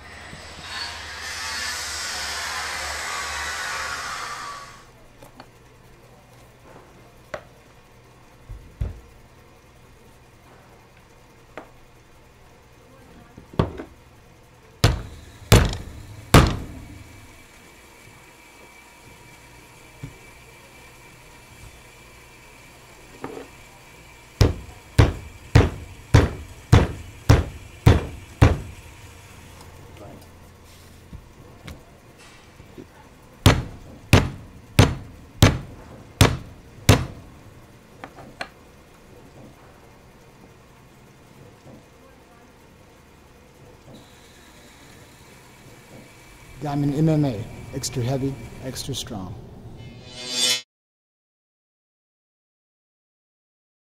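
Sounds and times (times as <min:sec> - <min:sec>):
low hum: 0:00.0 - 0:04.9, 0:14.8 - 0:17.9, 0:46.4 - 0:50.6
hammer blows on padding: 0:14.8 - 0:17.3, 0:24.4 - 0:29.0, 0:33.4 - 0:37.3
loud rushing noise: 0:49.6 - 0:50.6.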